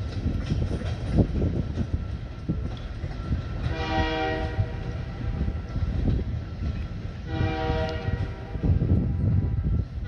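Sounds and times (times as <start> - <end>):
locomotive air horn blasts: 3.7 - 4.8, 7.2 - 8.8.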